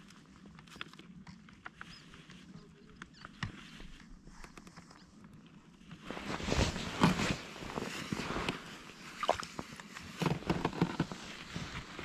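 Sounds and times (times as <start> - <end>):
rustling of heavy clothing: 3.6 - 12.0.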